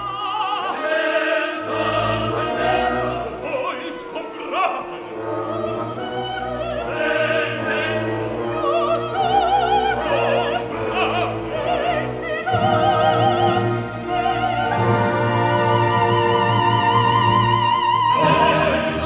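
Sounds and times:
operatic singing with vibrato: 0.0 - 19.0
orchestral accompaniment: 0.0 - 19.0.

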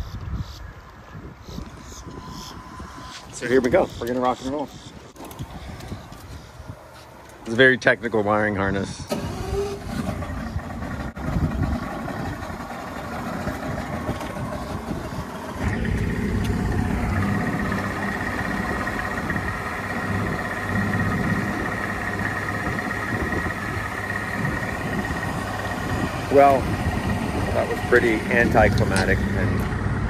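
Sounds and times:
high-pitched warning tone: 1.8 - 5.1
outboard motor running: 9.1 - 30.0.

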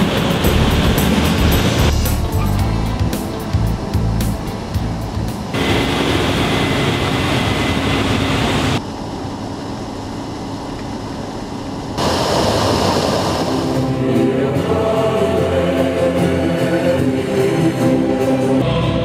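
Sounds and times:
combine harvester hiss and rumble: 0.0 - 18.6
choral music: 13.5 - 19.0.

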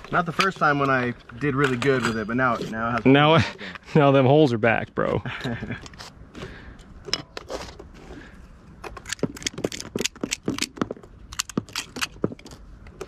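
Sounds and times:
magazines and cartridges clicking: 8.8 - 13.0.

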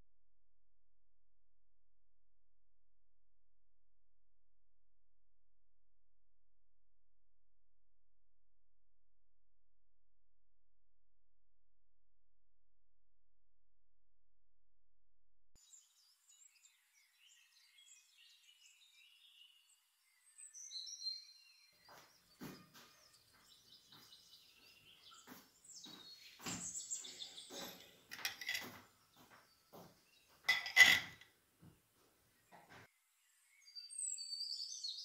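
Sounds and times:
birds chirping: 15.6 - 31.2
cutlery scraping a plate: 27.6 - 28.8, 30.5 - 31.2.

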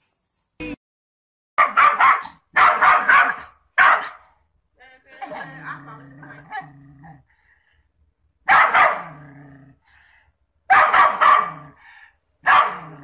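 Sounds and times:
dog barking: 1.6 - 4.3, 8.4 - 9.2, 10.7 - 11.8, 12.4 - 13.0
dog growling: 5.2 - 7.4, 8.9 - 10.0, 12.7 - 13.0.

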